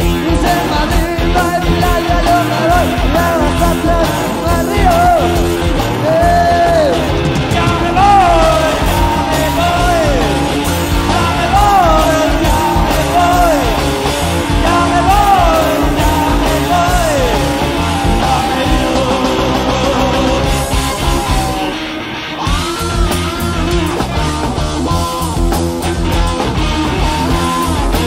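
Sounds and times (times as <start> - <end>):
rock band playing live: 0.0 - 28.0
lead melody sliding in pitch: 6.1 - 22.0.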